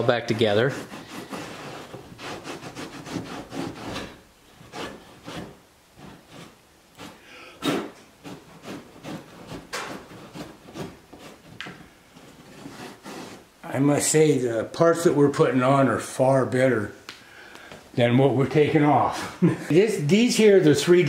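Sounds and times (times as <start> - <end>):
cloth towel rubbing: 12.2 - 13.5.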